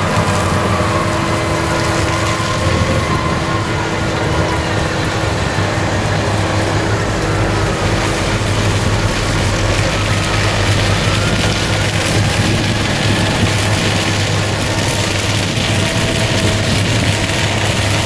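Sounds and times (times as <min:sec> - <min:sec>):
tractor diesel engine: 0:00.0 - 0:18.0.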